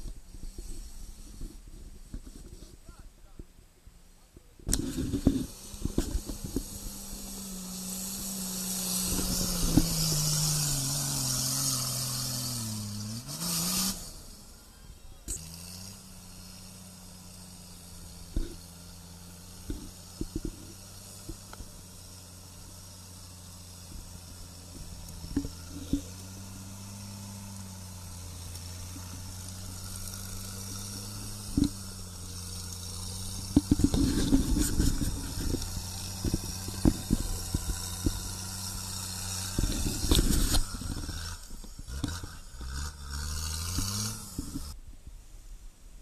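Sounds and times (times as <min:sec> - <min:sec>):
vehicle engine at low revs: 0:00.0 - 0:46.0
mud and stones knocking and scraping: 0:32.5 - 0:42.8.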